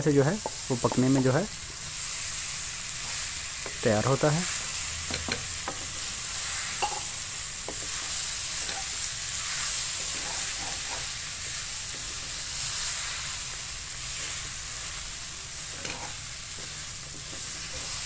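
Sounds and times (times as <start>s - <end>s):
food sizzling in a pan: 0.0s - 18.0s
wooden spatula scraping a pan: 7.7s - 12.4s, 15.6s - 18.0s.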